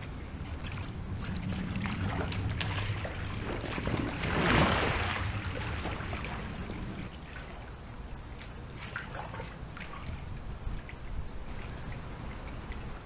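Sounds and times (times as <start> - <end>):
water lapping: 0.0 - 13.0
person splashing into pool: 1.4 - 6.7.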